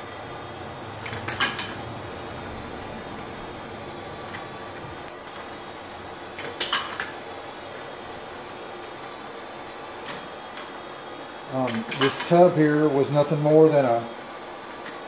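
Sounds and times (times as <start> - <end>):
machine hiss and hum: 0.0 - 15.0.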